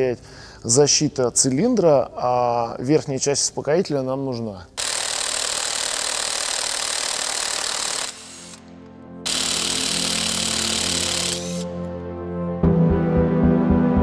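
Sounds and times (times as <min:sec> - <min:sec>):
power tool cutting metal: 0:04.8 - 0:11.8
background music: 0:06.7 - 0:14.0.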